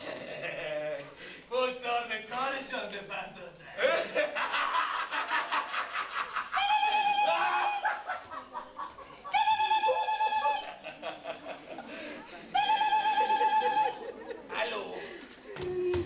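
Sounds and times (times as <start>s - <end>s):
man laughing hysterically: 0.0s - 1.0s, 3.8s - 12.0s, 12.6s - 14.5s.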